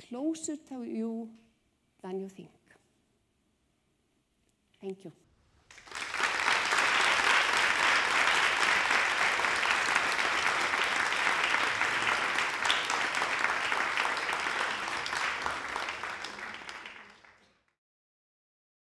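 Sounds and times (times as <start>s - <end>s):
audience applauding: 5.7s - 17.8s.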